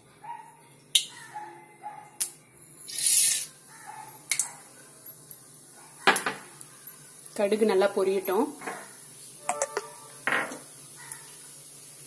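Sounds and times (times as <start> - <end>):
seeds sizzling in hot oil: 2.8 - 12.0.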